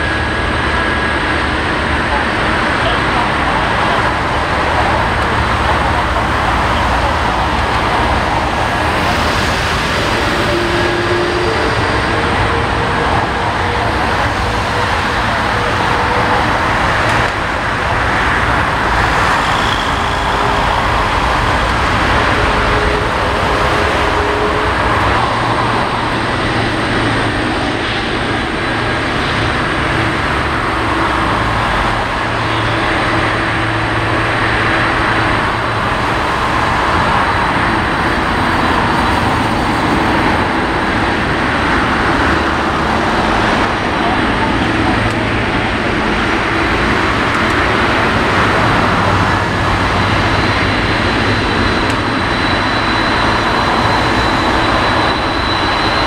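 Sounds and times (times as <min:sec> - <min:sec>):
jet airliner taxiing: 0:00.0 - 0:56.0.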